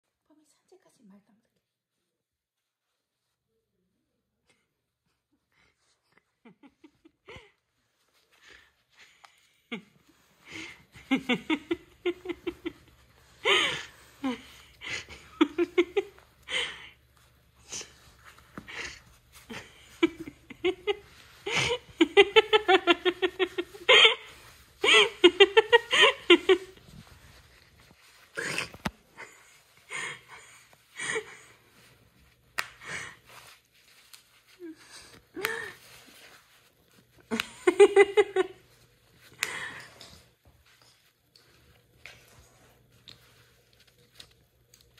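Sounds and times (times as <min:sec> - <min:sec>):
person laughing: 0:09.7 - 0:16.9, 0:18.7 - 0:27.1, 0:37.3 - 0:38.6.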